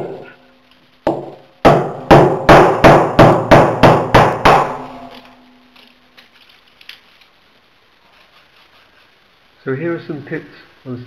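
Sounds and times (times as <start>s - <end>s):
hammer striking hard object: 1.0s - 5.2s.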